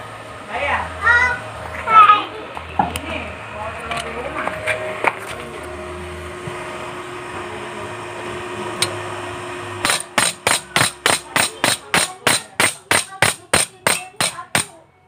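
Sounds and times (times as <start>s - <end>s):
steady hum: 0.0s - 14.8s
chipping hammer knocking on steel: 9.8s - 14.8s.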